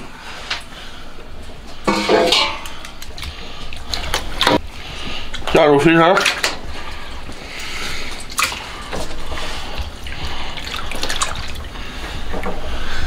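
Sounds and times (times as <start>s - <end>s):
water splashing and dripping: 2.0s - 12.5s.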